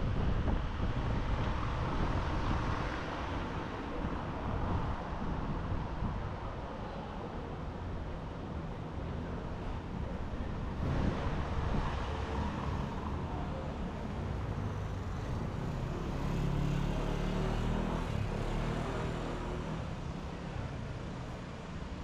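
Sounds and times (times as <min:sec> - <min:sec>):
vehicle engine: 0:10.6 - 0:20.3
cars going past: 0:10.7 - 0:20.1.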